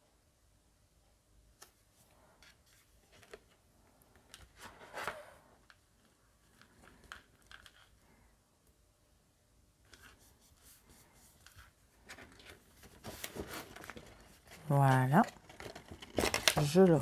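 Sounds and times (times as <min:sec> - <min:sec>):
paper and card rustling: 0:01.6 - 0:08.0, 0:09.8 - 0:17.0.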